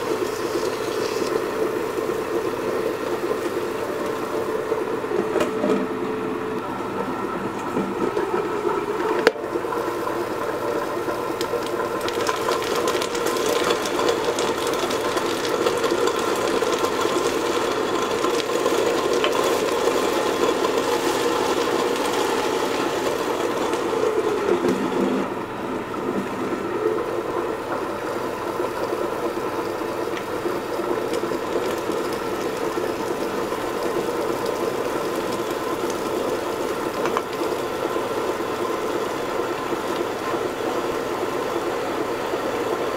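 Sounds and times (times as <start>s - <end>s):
stone grinder humming and rattling: 0.0s - 6.1s, 7.6s - 25.3s.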